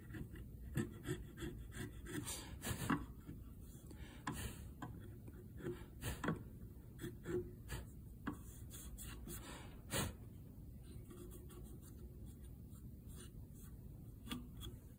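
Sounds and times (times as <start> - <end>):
fingers rubbing wood edge: 0.0 - 3.5, 5.2 - 9.4
chisel scraping wood: 0.0 - 9.5.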